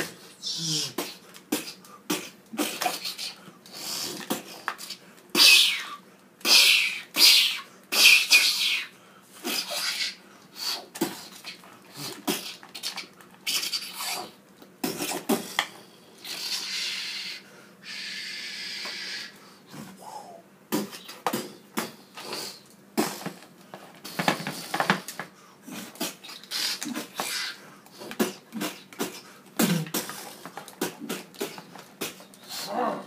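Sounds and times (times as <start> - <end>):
hissing blasts from mouth: 0.0 - 15.6, 16.2 - 19.4, 25.7 - 32.8
man making mouth sound effects: 0.0 - 23.3, 25.6 - 33.0.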